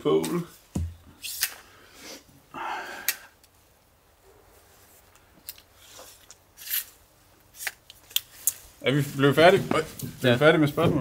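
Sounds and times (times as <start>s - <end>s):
breathy exhale: 1.6s - 3.4s
jacket rustle: 5.7s - 11.0s.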